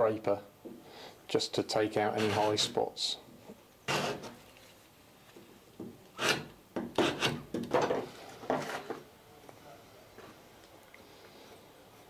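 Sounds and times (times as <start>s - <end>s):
chisel scraping wood: 2.2s - 2.8s, 3.9s - 4.4s, 6.2s - 7.5s.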